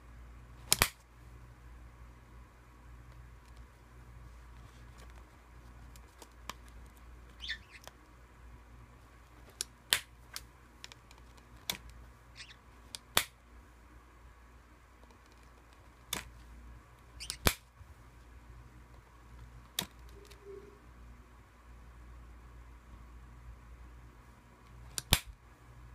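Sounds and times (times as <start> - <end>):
parrot chirps: 7.3 - 7.9, 12.3 - 12.6, 17.2 - 17.6, 20.1 - 20.8.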